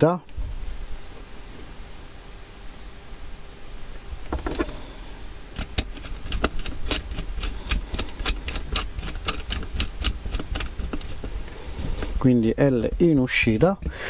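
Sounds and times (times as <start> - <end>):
tool knocks: 4.3 - 4.8.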